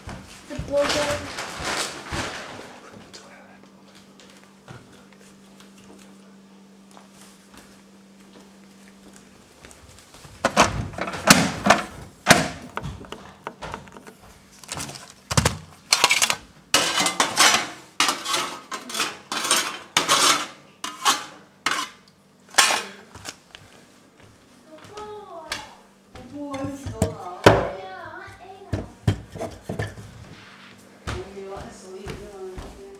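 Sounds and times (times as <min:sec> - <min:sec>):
faint hum: 0:00.0 - 0:19.0
household objects clattering: 0:00.5 - 0:02.9, 0:10.4 - 0:23.3.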